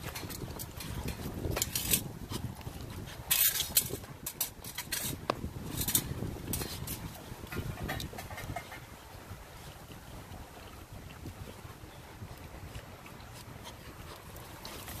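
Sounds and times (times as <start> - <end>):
puppies chewing frozen fish: 9.6 - 15.0.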